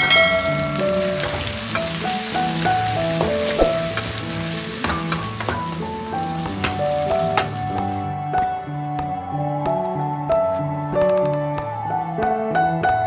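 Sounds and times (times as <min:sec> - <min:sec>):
metal spatula scraping pan: 0:00.0 - 0:08.1
vegetables sizzling in oil: 0:00.0 - 0:08.1
background music: 0:00.0 - 0:13.0.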